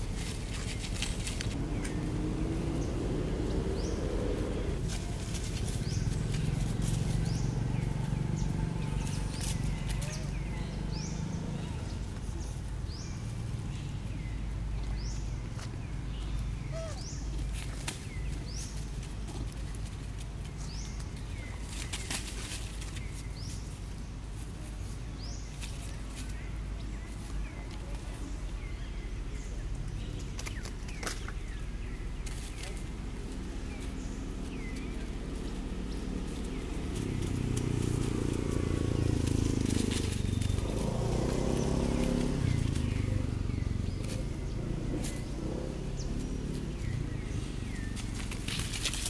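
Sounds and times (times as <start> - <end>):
steady low rumble: 0.0 - 21.7
dry leaves rustling: 0.0 - 49.0.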